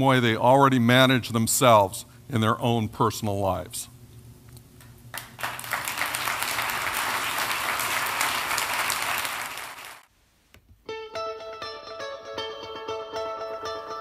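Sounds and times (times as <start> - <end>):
audience applauding: 5.1 - 10.1
music: 10.8 - 14.0.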